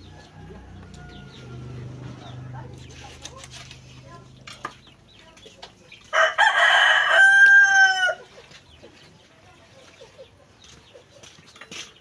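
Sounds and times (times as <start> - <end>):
rooster crowing: 0.0 - 1.8, 6.1 - 8.2.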